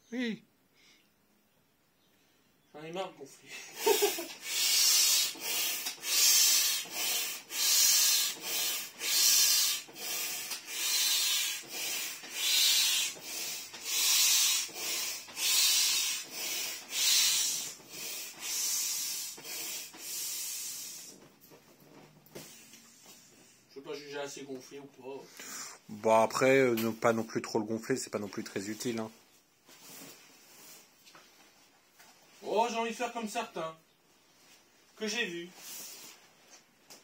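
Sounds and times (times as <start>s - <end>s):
hand air pump strokes: 3.8s - 21.3s.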